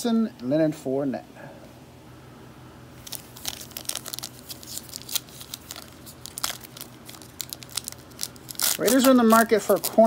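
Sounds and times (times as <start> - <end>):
cellophane wrapper crinkling: 3.0 - 10.0.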